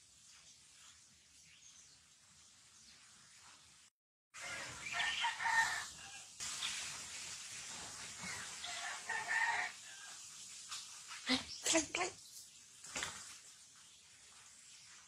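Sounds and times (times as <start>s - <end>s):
rooster crowing: 4.4s - 6.4s, 8.6s - 10.3s
steady hiss: 4.5s - 15.0s.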